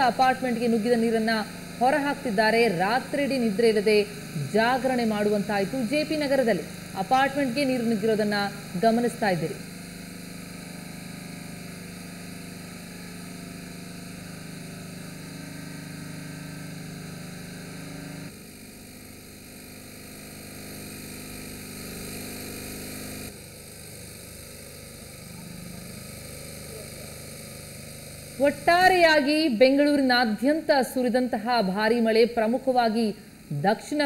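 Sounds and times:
portable pump engine humming: 0:00.0 - 0:13.6, 0:23.3 - 0:34.0.

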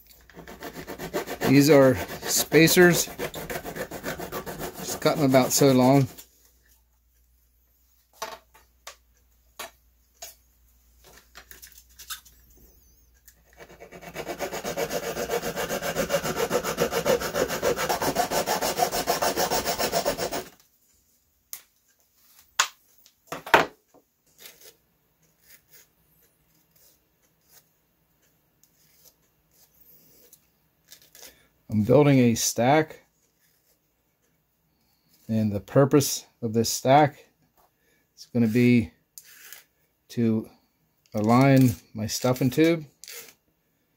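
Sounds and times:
saw cutting brass tubing: 0:00.3 - 0:06.2, 0:13.7 - 0:20.5.

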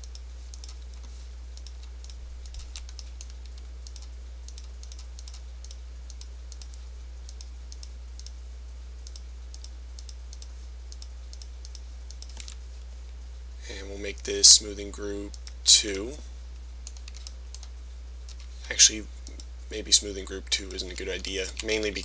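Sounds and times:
computer mouse clicking: 0:00.0 - 0:08.4, 0:09.0 - 0:12.6, 0:16.8 - 0:17.7
steady low hum: 0:00.0 - 0:22.0.

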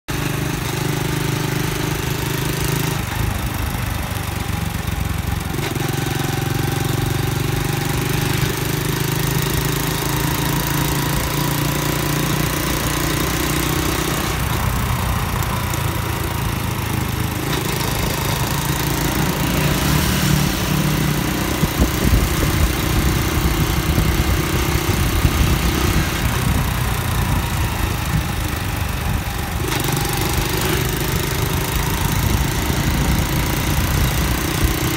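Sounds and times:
motorcycle engine running: 0:00.1 - 0:34.9
wind and road noise: 0:00.1 - 0:34.9
gusty low rumble: 0:21.5 - 0:29.6.

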